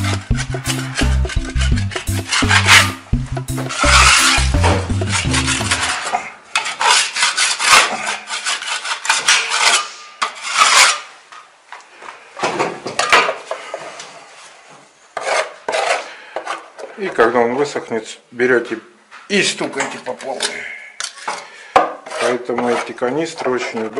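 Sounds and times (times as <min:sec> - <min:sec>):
putty knife scraping plaster: 0:00.0 - 0:03.0, 0:03.8 - 0:11.1, 0:15.2 - 0:17.0, 0:22.0 - 0:23.9.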